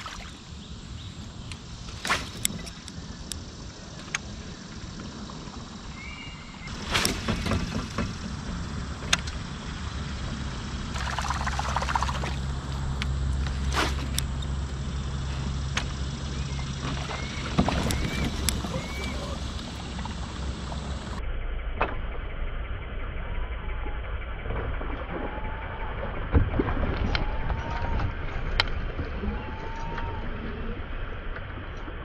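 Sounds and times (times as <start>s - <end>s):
motor humming: 6.6s - 21.2s.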